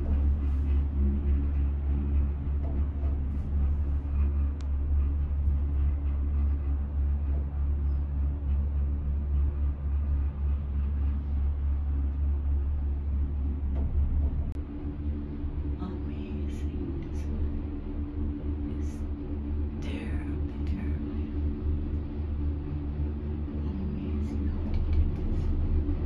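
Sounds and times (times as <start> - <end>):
cable car cabin rumble: 0.0 - 26.0.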